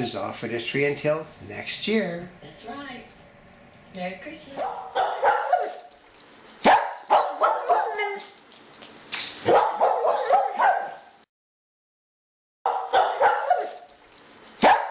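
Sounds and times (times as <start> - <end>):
dog barking and yipping: 4.5 - 6.0, 6.6 - 8.4, 9.4 - 11.2, 12.7 - 14.0, 14.6 - 14.9.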